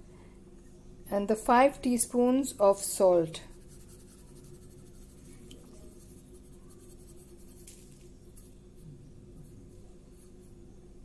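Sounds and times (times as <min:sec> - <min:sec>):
faint steady hum: 0:00.0 - 0:11.0
salt scratching on meat: 0:03.5 - 0:07.8.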